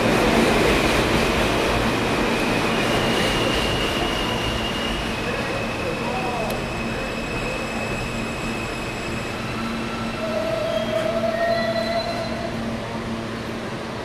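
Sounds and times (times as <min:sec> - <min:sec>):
subway train braking: 0:00.0 - 0:14.0
brake squeal: 0:02.9 - 0:12.6.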